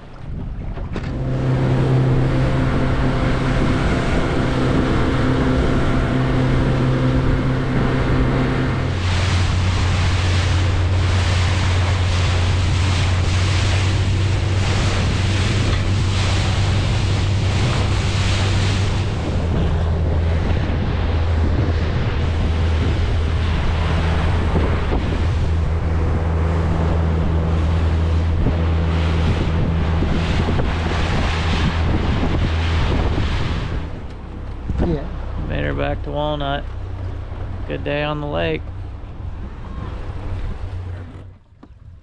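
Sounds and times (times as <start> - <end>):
outboard motor droning: 0.0 - 42.0
wind noise on microphone: 0.0 - 42.0
spray and water rushing: 2.4 - 35.0.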